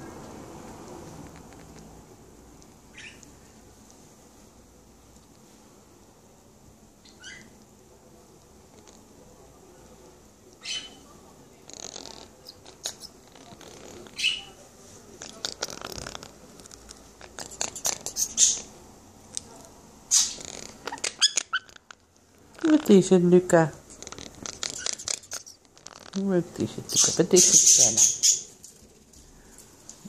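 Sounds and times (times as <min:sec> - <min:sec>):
parrots chirping softly: 0:02.6 - 0:03.9, 0:07.0 - 0:07.7, 0:10.5 - 0:22.9, 0:23.8 - 0:29.8
parrot clicky chatter: 0:11.6 - 0:14.5, 0:15.2 - 0:18.7, 0:20.1 - 0:22.9, 0:23.9 - 0:26.2, 0:26.8 - 0:28.5.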